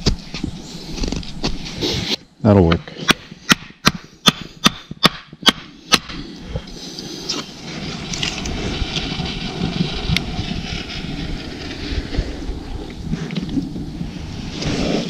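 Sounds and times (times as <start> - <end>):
steady rushing noise: 5.6 - 15.0.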